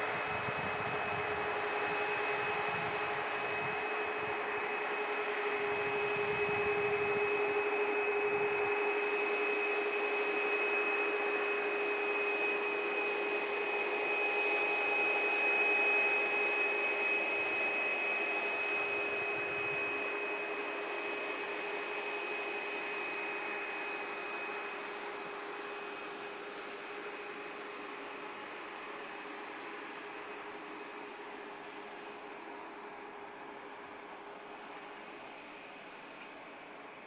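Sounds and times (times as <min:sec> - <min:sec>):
jet engines taxiing: 0:00.0 - 0:37.0.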